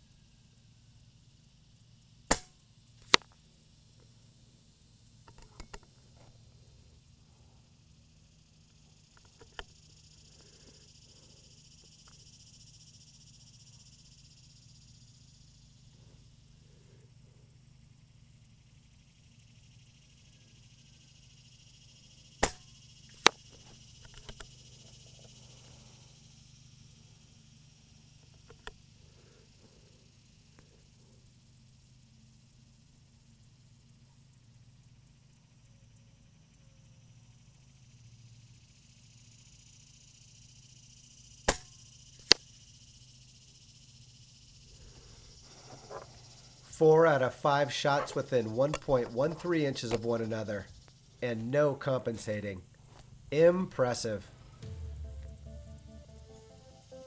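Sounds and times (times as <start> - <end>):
insects chirring: 0.0 - 57.0
pellet ringing on metal target: 2.3 - 2.6, 22.4 - 23.4
sharp crack: 2.3 - 3.3, 22.4 - 23.4
air rifle shot: 22.4 - 23.3.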